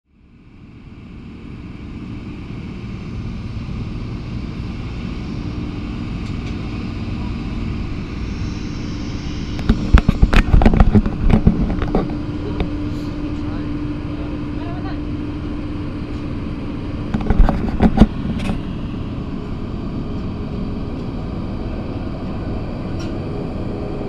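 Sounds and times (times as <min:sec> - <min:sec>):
hum of engines and machinery: 0:00.1 - 0:24.0
faint held tone: 0:06.9 - 0:11.2
sharp knocks and rustles: 0:17.1 - 0:18.6.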